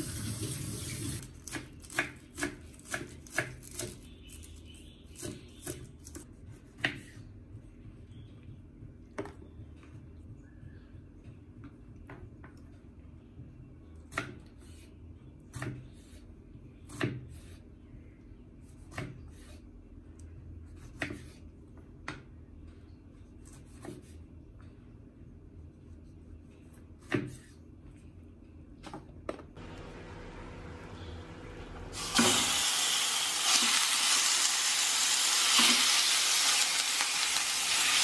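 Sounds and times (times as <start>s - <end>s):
low steady hum: 19.7s - 33.8s.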